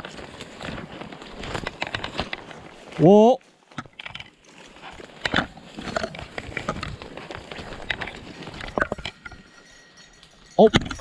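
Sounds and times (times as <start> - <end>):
twigs snapping: 0.0 - 3.0
footsteps crunching dry leaves: 0.0 - 8.8
brush rustling: 0.0 - 10.7.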